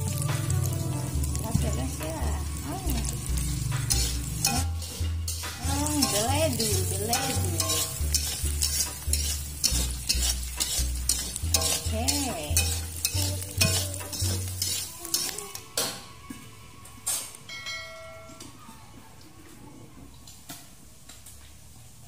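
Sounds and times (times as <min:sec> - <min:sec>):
metal spatula scraping a wok: 0:00.0 - 0:16.2
frying sizzle: 0:00.0 - 0:17.5, 0:20.1 - 0:22.0.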